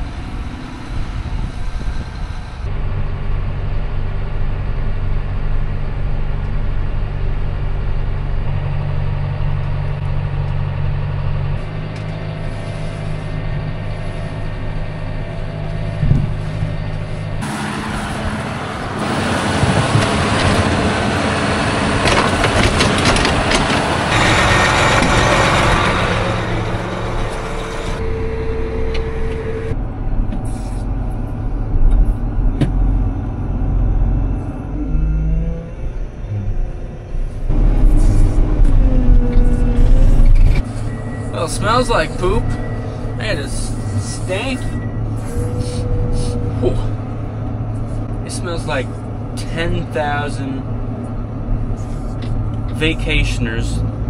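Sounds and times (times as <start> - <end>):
tractor diesel engine running: 0.0 - 54.0
rough machine noise: 17.4 - 35.2.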